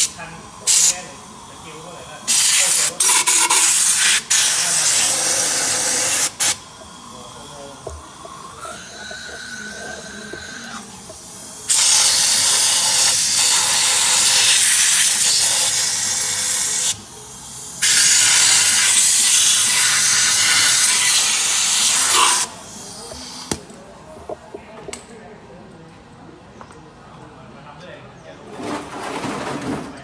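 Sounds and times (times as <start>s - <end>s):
compressed air gun hissing: 0.0s - 1.5s, 2.3s - 8.5s, 9.8s - 17.0s, 17.6s - 23.6s.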